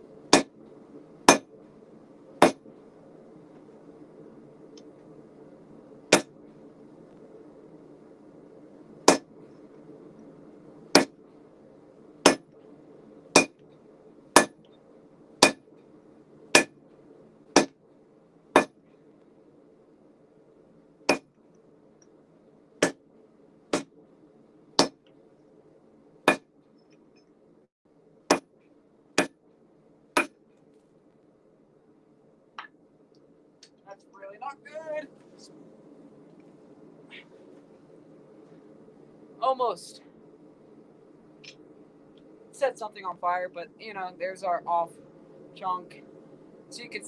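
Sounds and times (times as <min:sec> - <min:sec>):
low background rush: 0:00.0 - 0:47.0
hammer striking hot steel on anvil: 0:00.3 - 0:00.5, 0:01.3 - 0:01.5, 0:02.4 - 0:02.6, 0:06.1 - 0:06.3, 0:09.1 - 0:09.3, 0:12.2 - 0:12.5, 0:13.4 - 0:13.6, 0:14.4 - 0:14.6, 0:15.4 - 0:15.6, 0:17.6 - 0:17.8, 0:18.6 - 0:18.8, 0:21.1 - 0:21.3, 0:26.3 - 0:26.5.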